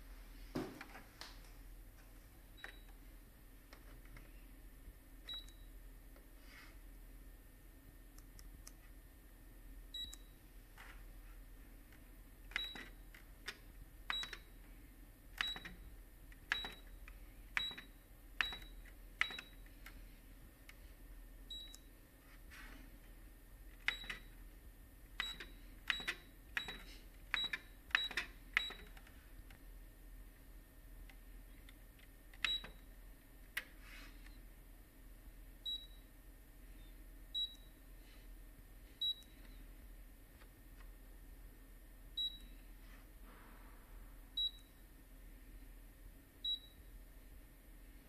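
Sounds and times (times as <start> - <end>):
copier keys clicking: 11.9 - 14.5, 15.4 - 20.0, 23.8 - 24.3, 25.1 - 29.1.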